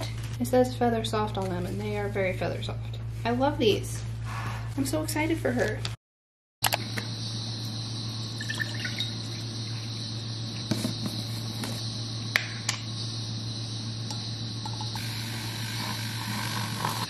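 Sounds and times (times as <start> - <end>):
low hum and hiss: 0.0 - 6.0, 6.7 - 17.0
juice pouring into glass jar: 8.3 - 9.6.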